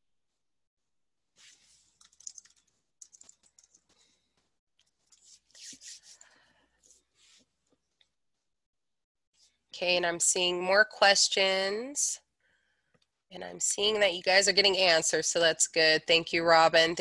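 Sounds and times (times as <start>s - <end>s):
typing on computer keyboard: 2.0s - 4.0s.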